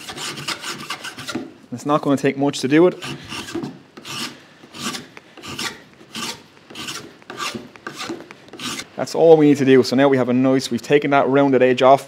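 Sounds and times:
hand file stroking steel: 0.0 - 1.5, 2.9 - 9.0.

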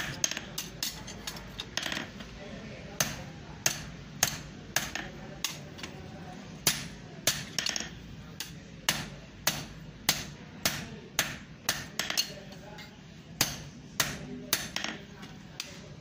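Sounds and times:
hammer striking iron on anvil: 3.0 - 5.0, 8.4 - 12.3.

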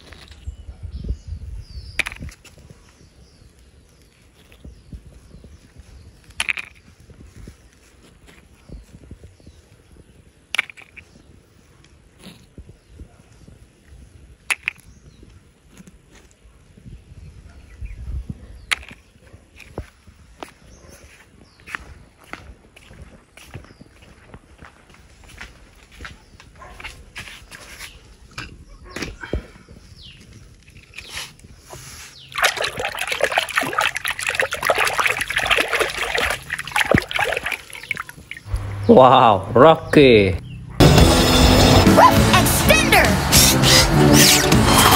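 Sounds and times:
hand splashing in tub of water: 32.3 - 38.4.

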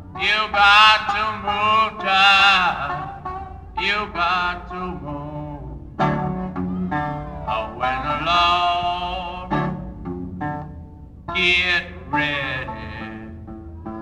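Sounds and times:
guitar accompaniment: 0.0 - 14.0
man singing blues: 0.1 - 6.3, 7.2 - 9.9, 11.3 - 13.5.

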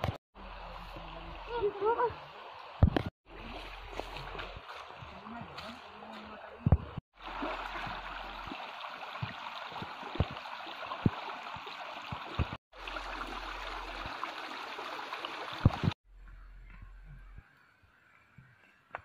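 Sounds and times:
stream running over rocks: 0.4 - 16.0
water spouting from bamboo pipes: 0.6 - 5.3, 7.2 - 16.0.

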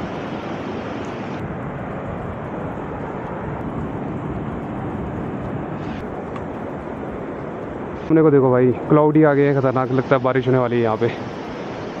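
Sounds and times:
stream and waterfall rushing: 0.0 - 1.4, 5.7 - 12.0.

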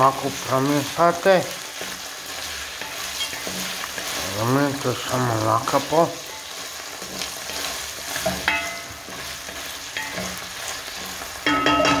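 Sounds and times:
meat and vegetables sizzling: 0.0 - 12.0
wooden spatula scraping a pot: 0.4 - 11.4
spatula knocking against pot: 11.4 - 12.0.

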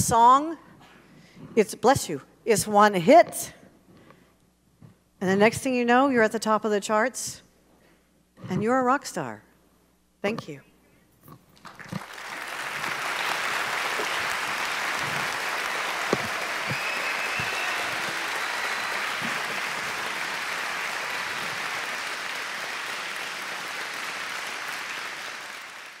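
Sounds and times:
audience applauding: 11.6 - 26.0.

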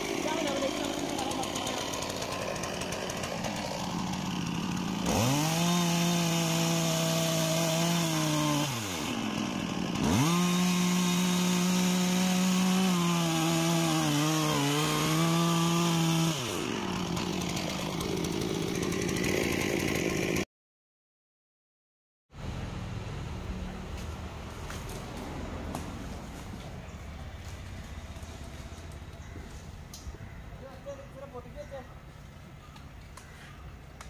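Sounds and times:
chainsaw cutting wood: 0.0 - 20.5
chainsaw idling: 0.0 - 20.5.

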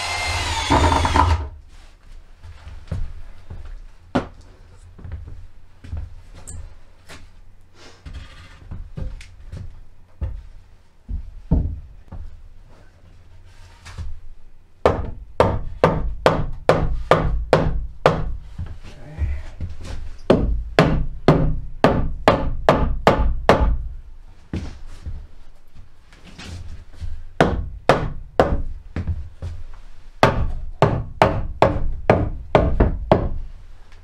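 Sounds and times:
hammer striking wood: 0.0 - 1.5, 14.9 - 18.3, 20.3 - 23.8, 30.2 - 33.4.

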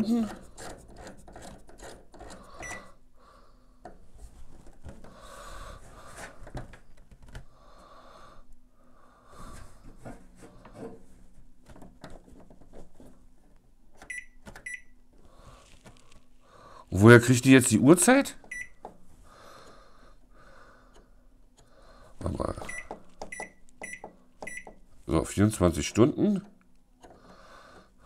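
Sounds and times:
person breathing: 2.3 - 4.0, 5.0 - 6.6, 7.4 - 11.0, 15.2 - 17.0, 19.2 - 22.2, 27.0 - 28.0.

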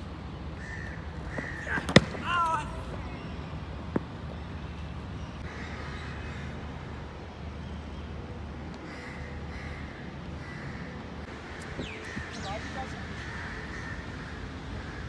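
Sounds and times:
crows cawing: 0.6 - 1.8, 8.8 - 11.0, 12.1 - 15.0.

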